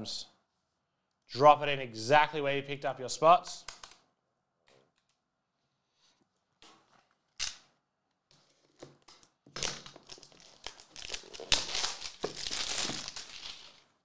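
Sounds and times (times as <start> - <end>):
shrink wrap crinkling and tearing: 9.1 - 14.0.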